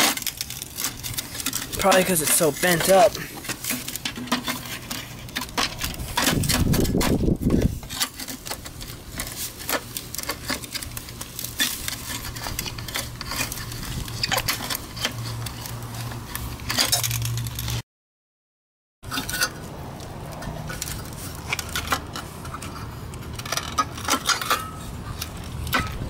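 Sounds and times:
screwdriver scraping metal: 0.0s - 17.8s.

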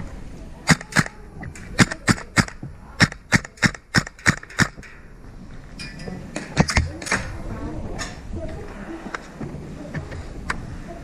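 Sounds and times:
airsoft gun firing: 0.7s - 1.2s, 1.8s - 4.8s.

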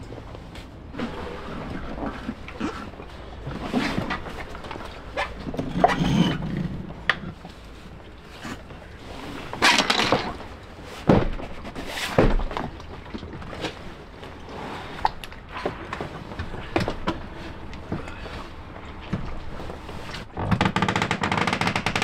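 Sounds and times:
outboard motor casing scraping: 0.2s - 21.0s.

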